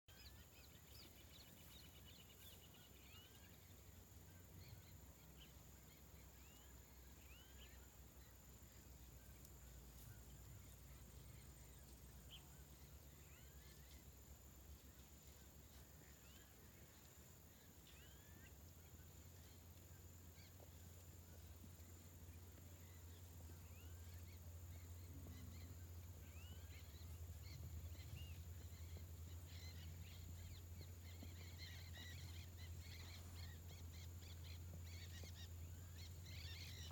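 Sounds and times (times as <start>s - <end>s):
birds chirping: 0.1s - 36.9s
low steady hum: 0.1s - 36.9s.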